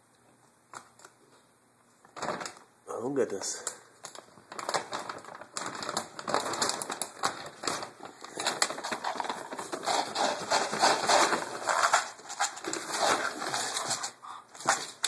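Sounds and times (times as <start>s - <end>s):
dog claws clicking on wooden floor: 4.0s - 15.0s.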